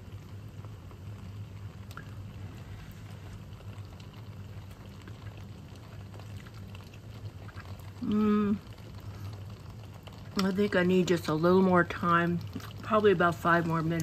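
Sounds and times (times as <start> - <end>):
sauce bubbling and popping: 0.0 - 14.0
steady low hum: 0.0 - 14.0.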